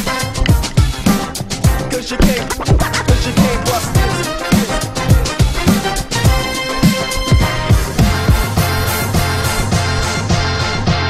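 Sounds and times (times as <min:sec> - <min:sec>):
electronic music: 0:00.0 - 0:09.4
deep kick drum beat: 0:01.7 - 0:09.0.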